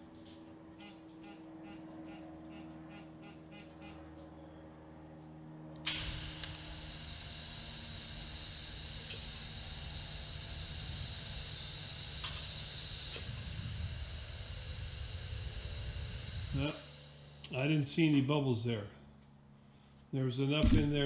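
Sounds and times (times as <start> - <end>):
gas hissing from torch: 5.9 - 17.6.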